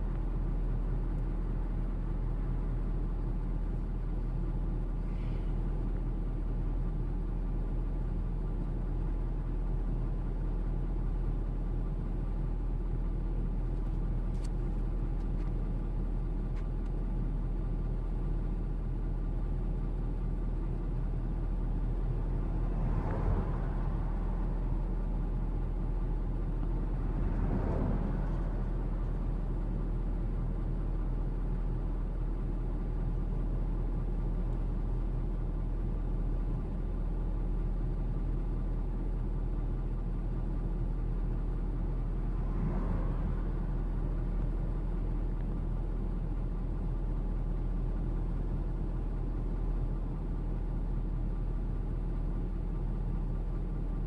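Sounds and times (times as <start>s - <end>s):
car idling from inside cabin: 0.0s - 54.0s
vehicles passing by: 21.8s - 30.8s, 41.8s - 45.6s.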